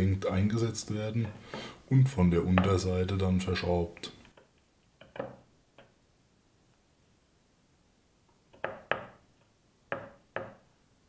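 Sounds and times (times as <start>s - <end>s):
rubber mounts knocking on plywood: 5.0s - 5.4s, 8.6s - 9.2s, 9.9s - 10.6s.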